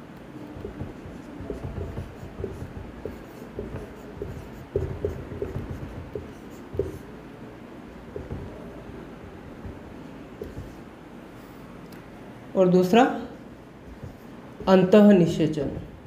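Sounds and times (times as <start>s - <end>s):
marker pen squeaking on whiteboard: 0.6s - 7.1s, 8.1s - 8.7s, 9.5s - 10.8s.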